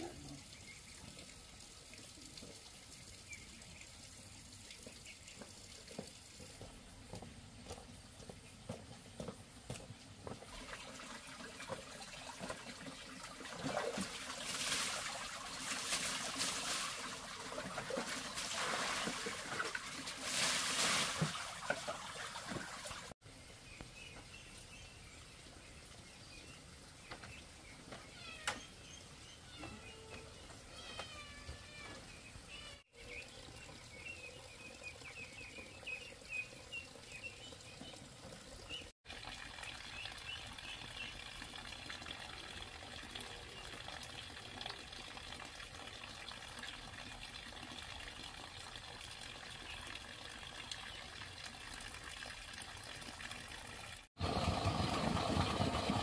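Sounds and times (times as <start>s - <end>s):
water running and trickling: 0.0s - 8.4s, 9.6s - 56.0s
small birds chirping: 23.4s - 38.9s.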